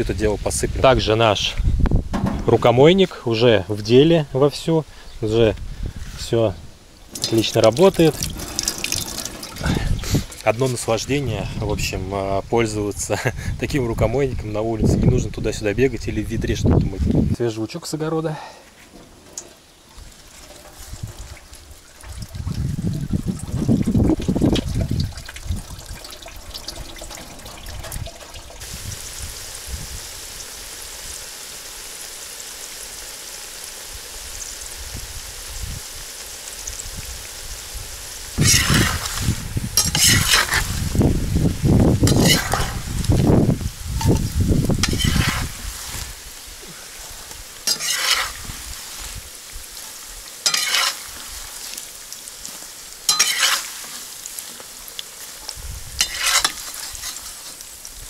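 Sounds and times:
loud sizzling flare-ups: 0:06.0 - 0:11.6, 0:18.8 - 0:58.0
potatoes sizzling in hot oil: 0:06.8 - 0:12.0, 0:19.2 - 0:58.0
spatula scraping and stirring: 0:38.4 - 0:40.9, 0:42.0 - 0:42.9, 0:44.0 - 0:46.2, 0:47.1 - 0:57.8.

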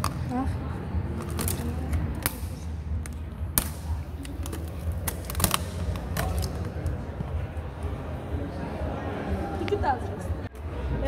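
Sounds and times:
plastic laptop case cracking: 0:03.6 - 0:06.6.

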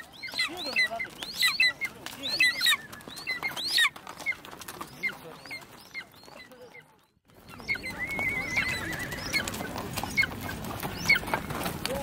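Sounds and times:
busy outdoor background: 0:00.0 - 0:12.0
horse whinnying: 0:07.8 - 0:09.7.

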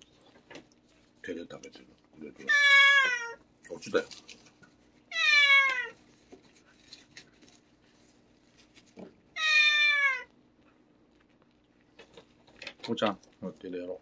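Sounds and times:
cat meowing: 0:02.4 - 0:03.4, 0:05.1 - 0:06.0, 0:09.4 - 0:10.3.

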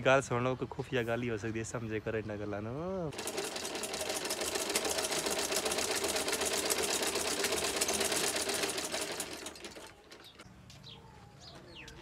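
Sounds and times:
sewing machine clattering: 0:03.1 - 0:10.4.

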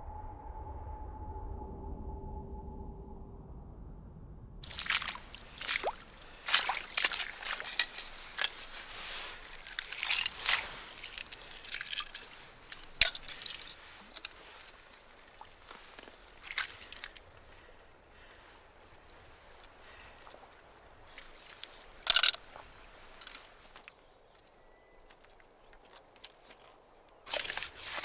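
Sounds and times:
wet seaweed squelching: 0:04.6 - 0:18.3, 0:27.3 - 0:28.0
mussel shells clicking: 0:22.0 - 0:22.4.

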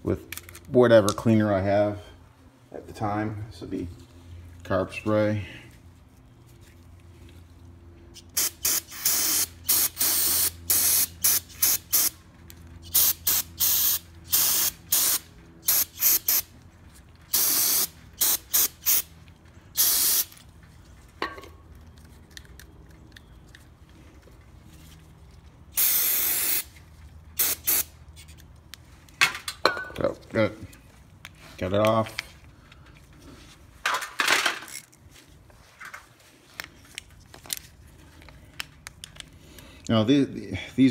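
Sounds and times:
aerosol spray hissing bursts: 0:08.3 - 0:12.1, 0:12.9 - 0:16.4, 0:17.3 - 0:19.0, 0:19.8 - 0:20.3, 0:25.8 - 0:26.7, 0:27.4 - 0:27.9.

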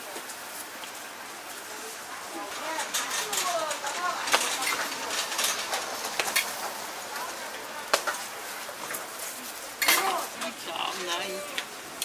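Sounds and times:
faint background voices: 0:01.2 - 0:12.0
cooking utensils clicking: 0:02.5 - 0:08.2.

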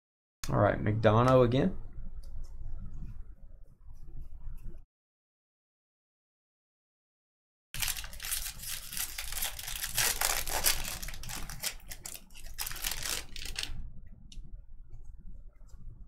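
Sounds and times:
foil wrapper crinkling and tearing: 0:07.8 - 0:13.8
rustle of cards being handled: 0:07.8 - 0:13.8.

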